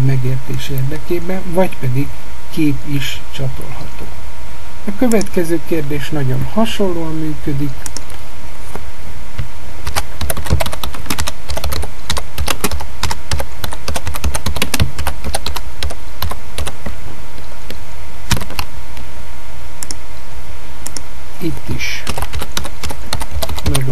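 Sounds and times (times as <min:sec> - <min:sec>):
steady low hum: 0:00.0 - 0:23.9
typing on keyboard: 0:09.9 - 0:16.8, 0:22.0 - 0:23.9.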